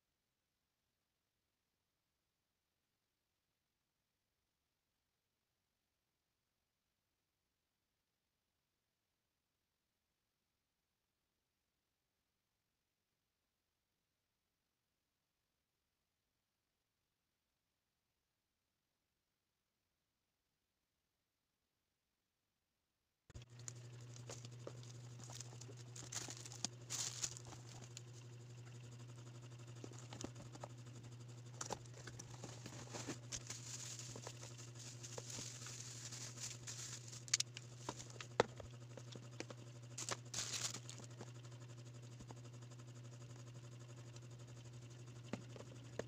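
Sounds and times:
low hum: 0:23.4 - 0:46.0
plastic packaging crinkling: 0:23.7 - 0:28.1, 0:31.8 - 0:38.3, 0:40.0 - 0:41.0.

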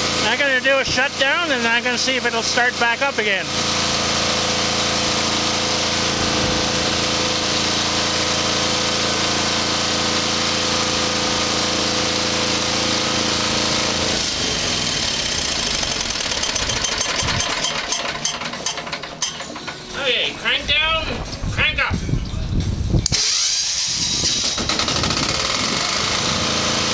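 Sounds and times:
diesel generator running: 0:00.0 - 0:26.9
engine winding down with clicks: 0:03.6 - 0:20.0, 0:23.0 - 0:26.9.

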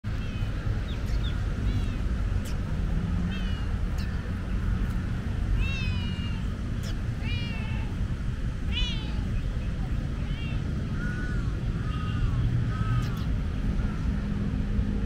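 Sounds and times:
steady low rumble: 0:00.0 - 0:15.0
cat meowing: 0:03.3 - 0:04.1, 0:05.6 - 0:06.5, 0:07.2 - 0:08.0, 0:08.7 - 0:09.4, 0:10.2 - 0:13.3.

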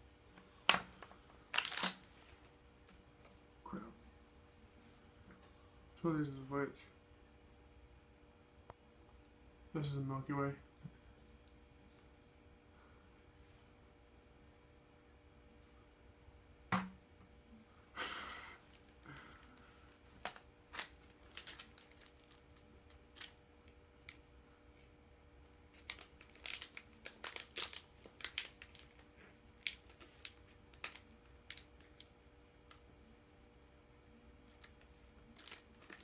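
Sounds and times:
plastic wrapper crinkling: 0:01.5 - 0:02.0, 0:19.5 - 0:23.4, 0:25.7 - 0:32.1, 0:34.5 - 0:36.0.

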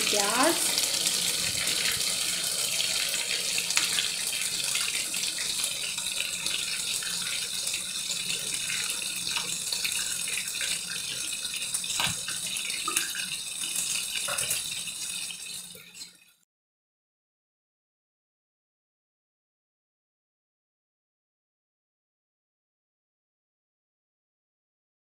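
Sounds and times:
oil sizzling in a pan: 0:00.0 - 0:16.4.

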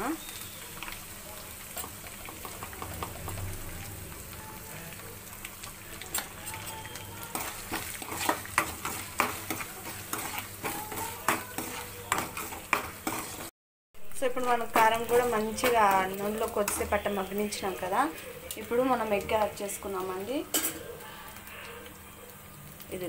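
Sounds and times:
spices sizzling in hot oil: 0:00.0 - 0:23.0
metal spatula scraping pan: 0:06.1 - 0:13.5.

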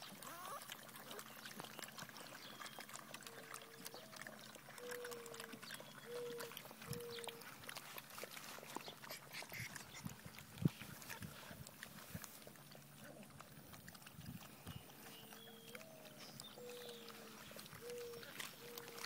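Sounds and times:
puppies lapping and slurping: 0:00.0 - 0:19.0
puppy whines: 0:00.2 - 0:01.2.

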